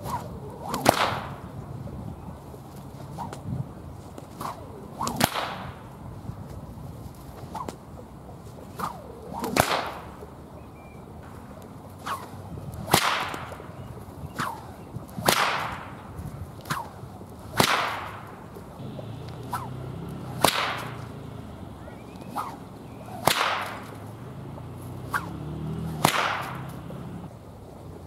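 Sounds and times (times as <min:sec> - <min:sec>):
whip cracking: 0:00.0 - 0:01.4, 0:03.1 - 0:03.5, 0:04.2 - 0:05.9, 0:07.4 - 0:07.8, 0:08.6 - 0:10.2, 0:12.0 - 0:13.7, 0:14.3 - 0:27.3
faint whip snap: 0:00.0 - 0:01.5, 0:03.1 - 0:03.6, 0:04.2 - 0:05.9, 0:07.3 - 0:08.0, 0:08.6 - 0:10.3, 0:11.3 - 0:27.3.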